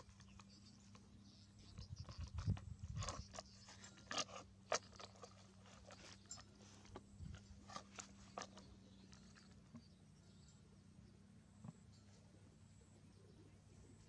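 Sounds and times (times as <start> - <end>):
low steady hum: 0.0 - 14.0
small clicks and crunches: 1.8 - 9.9.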